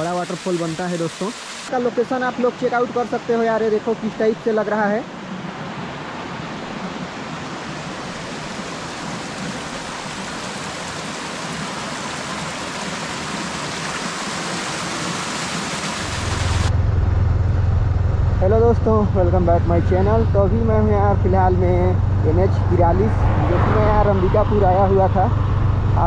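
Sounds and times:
waterfall rushing: 0.0 - 16.7
low steady hum: 16.0 - 26.0.

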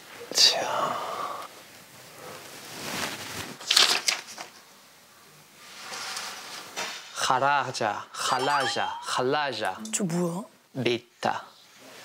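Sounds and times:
paper rustling and crinkling: 2.6 - 4.6.

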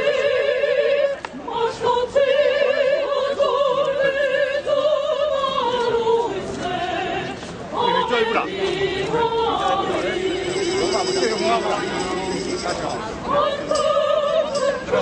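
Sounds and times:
operatic solo singing: 0.0 - 11.2.

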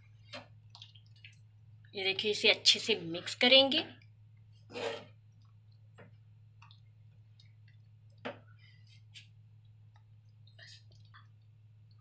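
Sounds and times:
soft squelch: 4.4 - 12.0.

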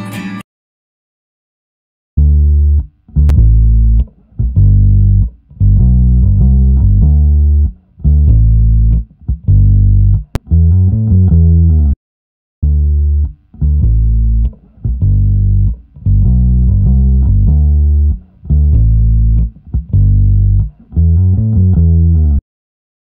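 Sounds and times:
bass guitar riff: 2.2 - 12.0, 12.6 - 22.4.

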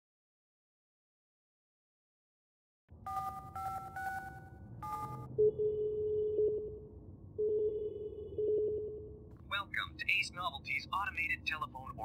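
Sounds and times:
steady telephone tone: 3.0 - 9.2.

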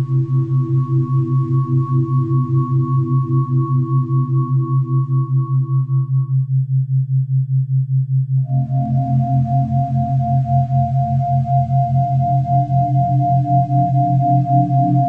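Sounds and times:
faint pulsing higher tones: 0.0 - 6.4, 8.5 - 15.0
low pulsing sine hum: 0.0 - 15.0.

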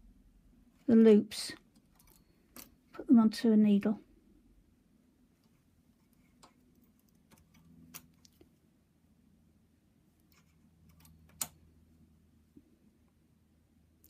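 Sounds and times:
metal tool clicking against needles: 1.6 - 2.8, 10.3 - 11.6.

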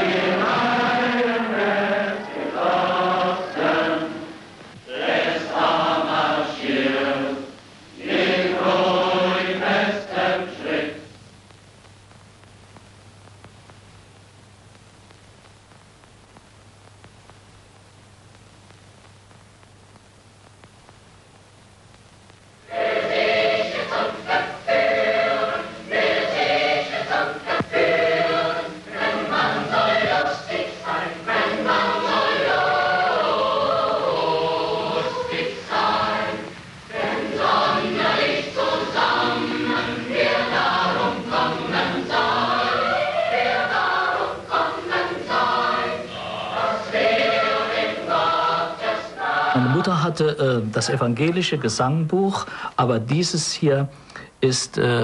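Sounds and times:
boys' choir singing: 0.0 - 11.1, 22.6 - 50.2.

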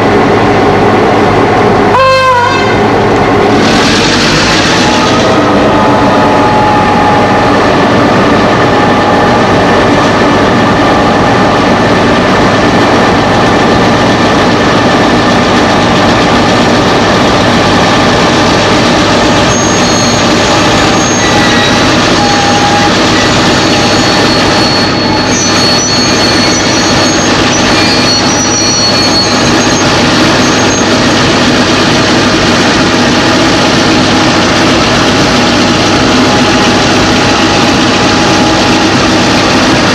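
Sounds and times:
locomotive engine drone: 0.0 - 39.9
high wheel squeals: 19.4 - 31.0.

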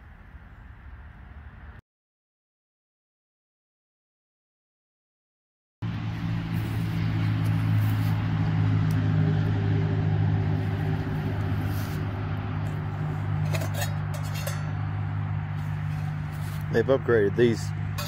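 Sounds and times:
metal pot and lid clinking: 13.4 - 15.0.

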